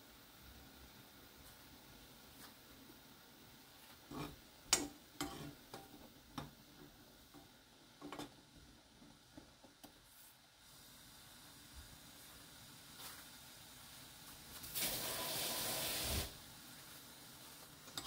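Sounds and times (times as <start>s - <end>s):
bubbling water hiss: 14.5s - 17.3s.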